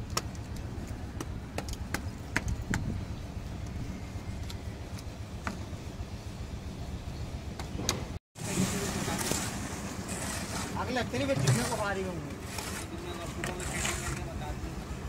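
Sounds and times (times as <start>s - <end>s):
concrete mixer engine humming: 0.0s - 15.0s
shovels scraping wet concrete: 8.4s - 14.4s.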